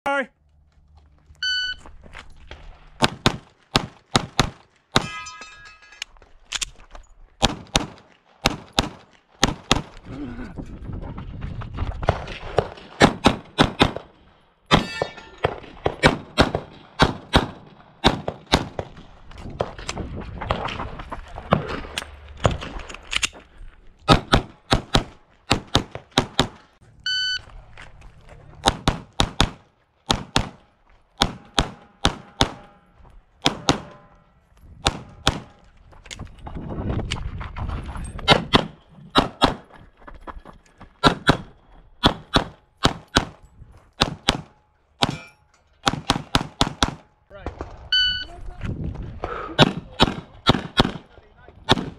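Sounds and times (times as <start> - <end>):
short electronic beep: 1.4 - 1.8, 27.0 - 27.4, 47.9 - 48.3
pistol shots: 7.4 - 10.0, 12.1 - 14.1, 14.7 - 18.9, 28.6 - 30.6, 31.2 - 32.8, 33.4 - 34.1, 34.8 - 35.6, 41.0 - 43.4, 44.0 - 45.2, 45.8 - 47.7, 49.6 - 51.9.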